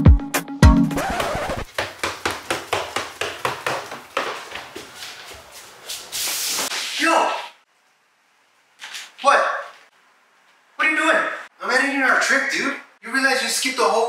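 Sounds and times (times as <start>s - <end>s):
quick footsteps on stairs: 1.1s - 6.7s.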